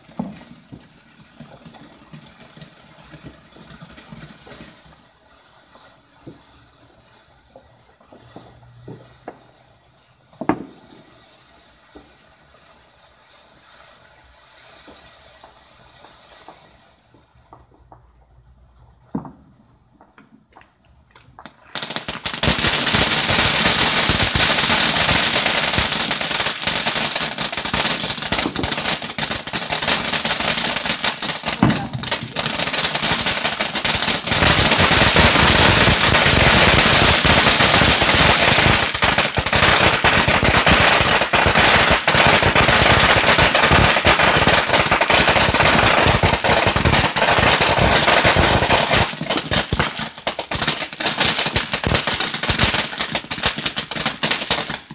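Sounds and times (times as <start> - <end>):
firework fountain hissing and crackling: 0.0 - 54.9.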